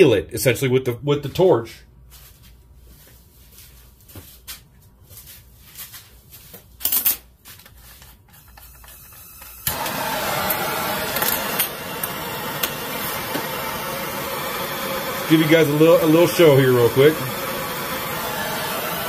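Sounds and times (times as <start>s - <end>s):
gas torch clicks: 9.3s - 16.2s
gas torch hissing: 9.3s - 19.0s
loud burst of noise: 9.6s - 19.0s.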